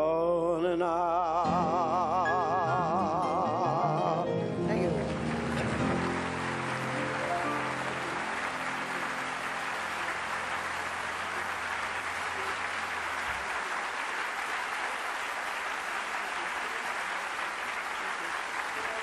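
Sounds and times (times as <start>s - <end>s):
audience applauding: 4.7s - 19.0s.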